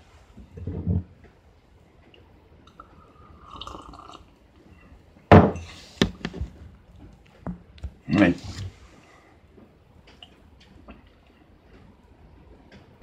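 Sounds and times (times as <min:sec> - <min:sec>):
mug set down with a clunk: 0:05.3 - 0:06.3.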